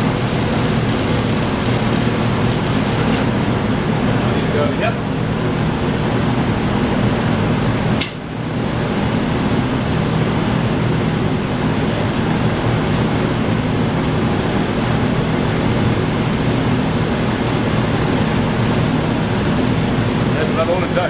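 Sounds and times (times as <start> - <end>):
machine gearmotors humming: 0.0 - 8.9
sharp click: 8.0 - 8.2.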